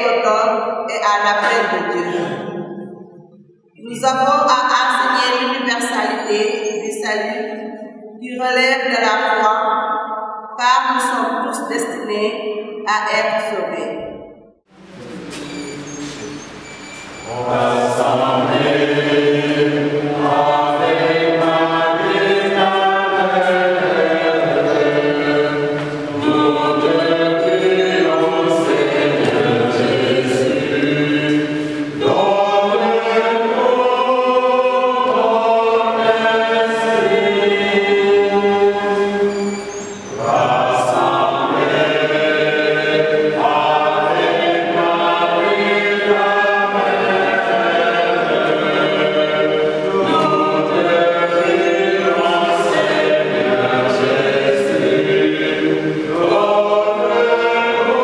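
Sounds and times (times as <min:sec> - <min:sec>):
choir singing a hymn: 0:01.0 - 0:03.0, 0:16.8 - 0:58.0.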